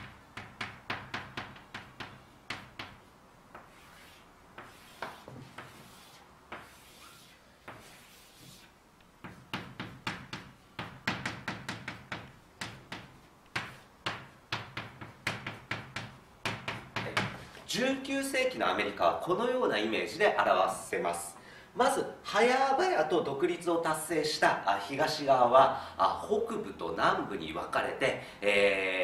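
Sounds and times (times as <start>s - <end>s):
chalk tapping on blackboard: 0.0s - 17.4s
chalk scraping on blackboard: 2.0s - 17.0s.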